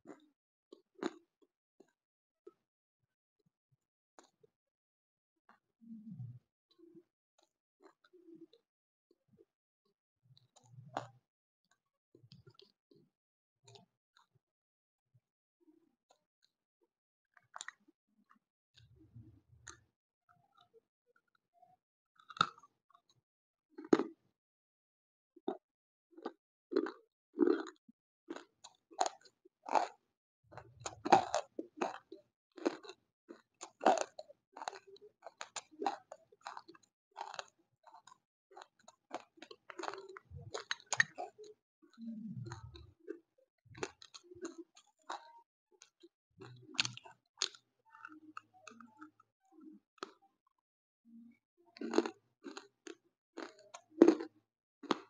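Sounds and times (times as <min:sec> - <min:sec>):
crunchy chewing: 0:22.2 - 0:22.7, 0:23.8 - 0:24.2, 0:26.2 - 0:30.0, 0:30.6 - 0:43.2, 0:43.8 - 0:49.2, 0:51.8 - 0:55.0.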